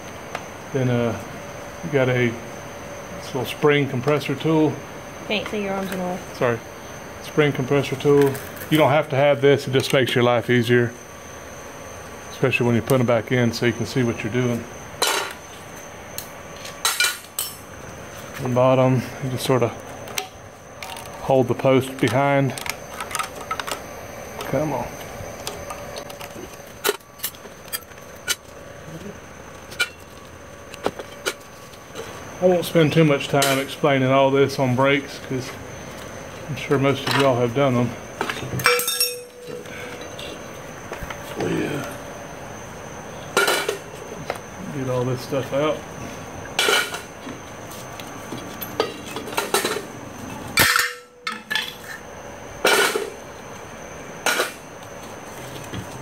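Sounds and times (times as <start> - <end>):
sharp metal clanks: 38.6 - 40.1, 50.6 - 51.9
metal brake parts clinking: 38.6 - 40.2, 50.6 - 52.0.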